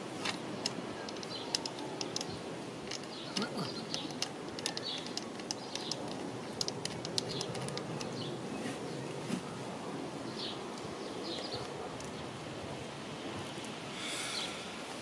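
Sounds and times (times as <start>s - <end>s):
garden birds chirping: 0.0s - 15.0s.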